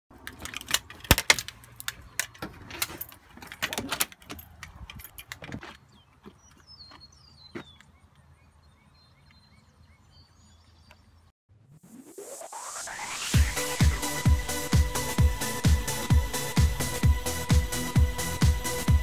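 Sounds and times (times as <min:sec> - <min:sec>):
keys jangling in a door lock: 0:02.2 - 0:05.6.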